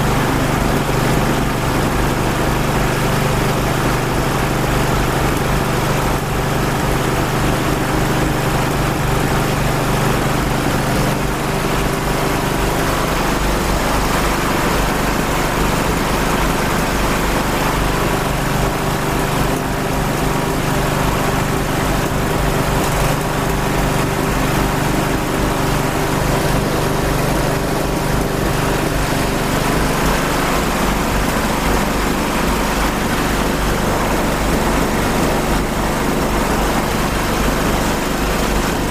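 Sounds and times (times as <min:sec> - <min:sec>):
engine running steadily: 0:00.0 - 0:38.9.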